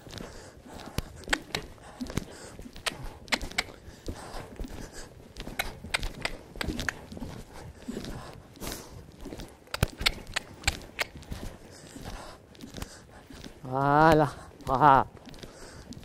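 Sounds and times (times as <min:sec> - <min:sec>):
horse hoofbeats on sand: 0:00.0 - 0:16.0.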